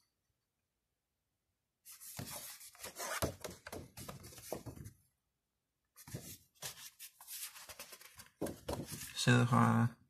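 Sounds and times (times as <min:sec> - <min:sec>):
photo cards and paper rustling: 0:01.9 - 0:05.0, 0:06.0 - 0:09.3.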